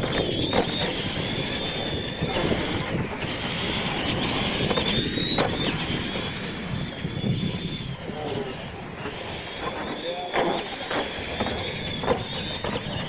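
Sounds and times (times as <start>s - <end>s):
electric motor whine: 0.0s - 13.0s
tyres on dirt: 0.0s - 13.0s.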